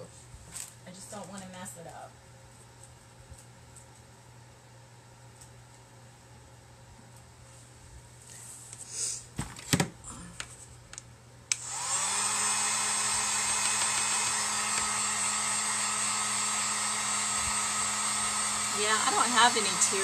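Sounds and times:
heat gun whirring and blowing: 0:11.5 - 0:20.0.

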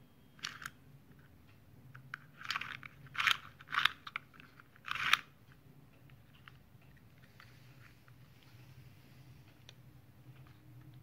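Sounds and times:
plastic ripcord ratcheting: 0:02.4 - 0:05.3.

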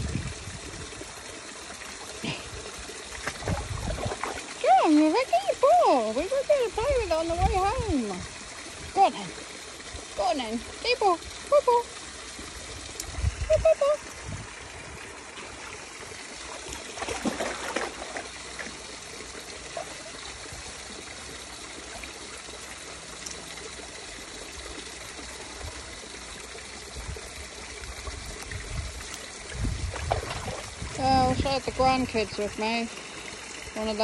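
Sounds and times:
stream trickling: 0:00.0 - 0:34.0
dog splashing in water: 0:03.1 - 0:05.0, 0:16.4 - 0:18.8, 0:29.8 - 0:31.1.

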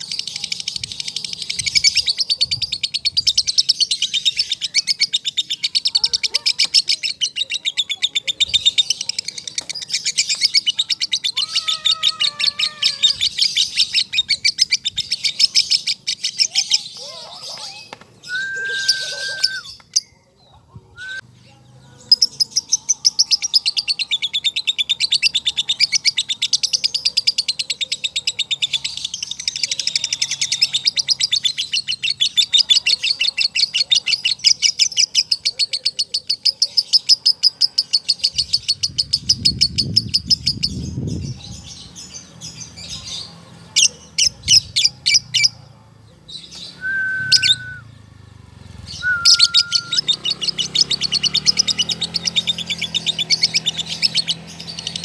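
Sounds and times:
short steady whistles: 0:46.7 - 0:47.9, 0:48.9 - 0:50.0.

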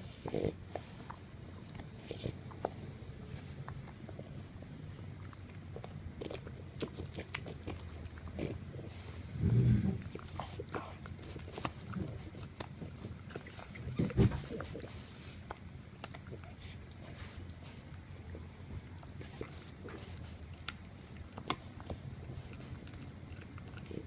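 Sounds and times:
dog grunting: 0:00.0 - 0:00.6, 0:08.3 - 0:11.0
dog chewing on a stick: 0:00.0 - 0:24.0.

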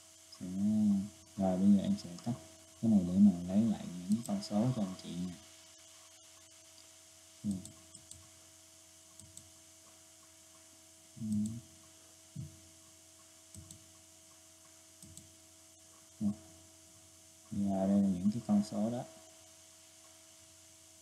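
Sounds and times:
electrical mains hum: 0:00.0 - 0:21.0
short low vocal sounds: 0:00.4 - 0:05.4, 0:07.4 - 0:07.7, 0:11.2 - 0:11.6, 0:16.2 - 0:16.4
computer mouse clicks: 0:04.1 - 0:04.5, 0:07.5 - 0:08.3, 0:09.1 - 0:09.5, 0:13.5 - 0:14.0, 0:15.0 - 0:15.3.

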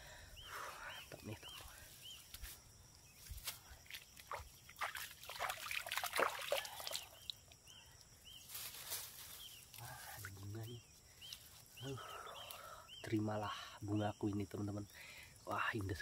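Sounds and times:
water splashing: 0:04.2 - 0:07.3.

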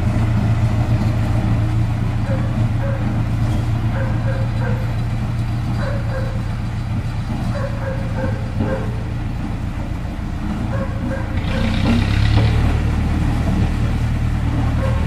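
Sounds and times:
road roller diesel engine: 0:00.0 - 0:15.0
dog barking: 0:02.2 - 0:03.2, 0:03.9 - 0:05.0, 0:05.8 - 0:06.5, 0:07.5 - 0:09.1, 0:10.7 - 0:11.9, 0:14.7 - 0:15.0.

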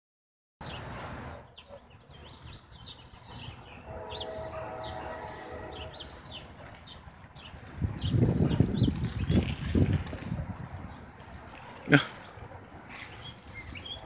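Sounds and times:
songbirds chirping: 0:00.6 - 0:14.0
distant locomotive air horn: 0:03.8 - 0:06.5.

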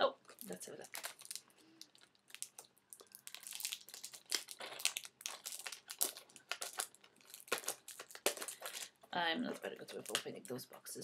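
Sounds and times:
cardboard packaging crinkling: 0:00.2 - 0:10.7.

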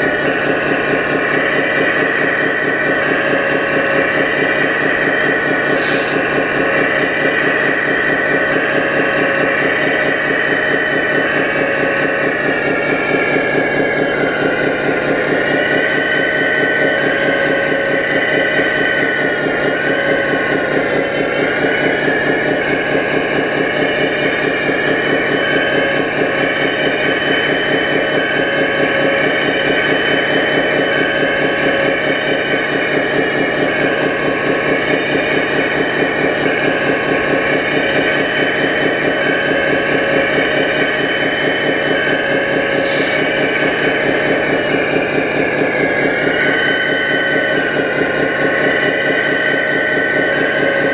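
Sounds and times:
hydraulic pump whine: 0:00.0 - 0:50.9
rapid engine-like pulsing: 0:00.0 - 0:50.9.

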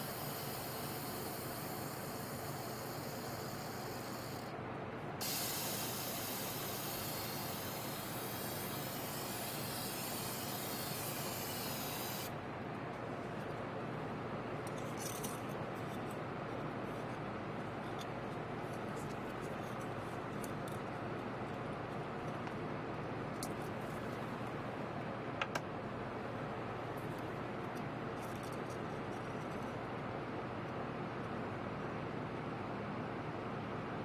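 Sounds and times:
aerosol spray can hissing: 0:00.0 - 0:04.5, 0:05.2 - 0:12.4.

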